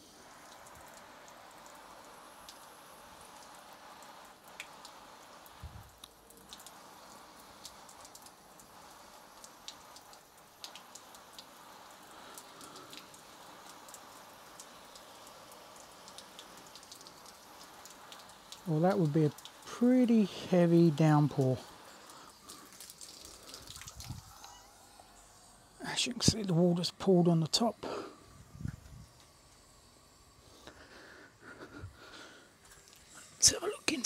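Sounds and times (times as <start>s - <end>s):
water spray pattering on bag: 0.0s - 24.9s.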